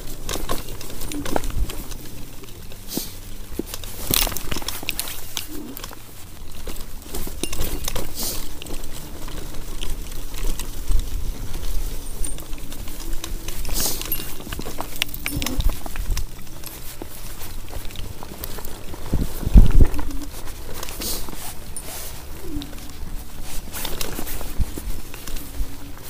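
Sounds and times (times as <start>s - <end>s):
scooter clattering over bumps: 0.0s - 26.0s
wind rumble on microphone: 6.4s - 26.0s.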